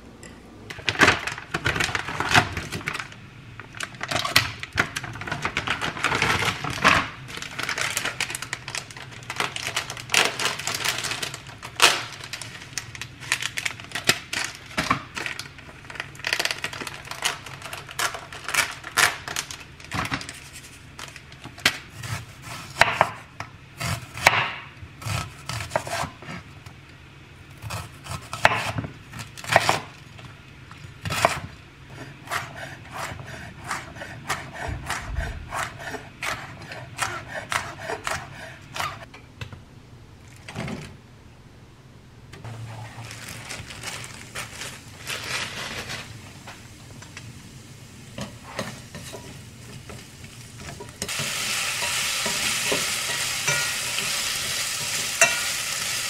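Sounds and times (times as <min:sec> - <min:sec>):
vegetables rustling and clattering: 0:00.7 - 0:22.4, 0:42.4 - 0:47.4
knife slicing onion: 0:21.9 - 0:26.4, 0:27.6 - 0:29.9, 0:31.0 - 0:39.1.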